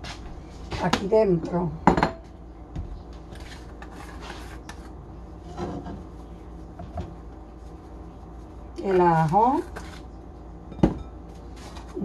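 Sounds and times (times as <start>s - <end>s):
steady low hum: 0.0s - 12.0s
kitchen utensils scraping and rubbing: 3.3s - 6.4s.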